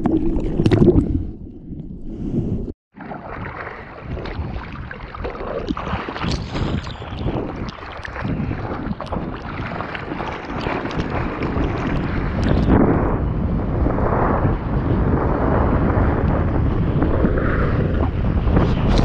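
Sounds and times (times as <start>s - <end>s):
water splashing from paddling: 3.0s - 12.7s.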